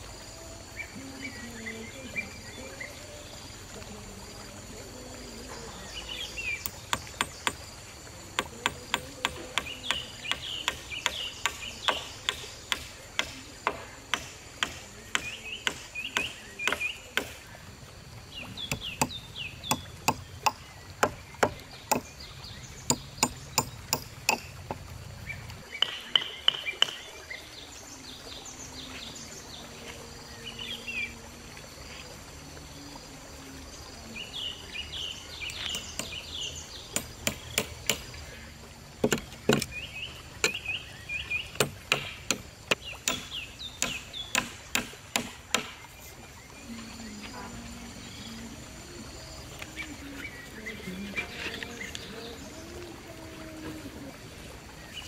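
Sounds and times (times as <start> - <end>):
birds chirping: 0.0 - 32.2, 32.8 - 55.0
hammer tapping on bamboo: 6.6 - 7.7, 8.4 - 17.4, 18.7 - 22.1, 22.9 - 24.9, 25.8 - 27.0, 35.5 - 36.2, 36.9 - 38.1, 39.0 - 39.7, 41.5 - 45.8.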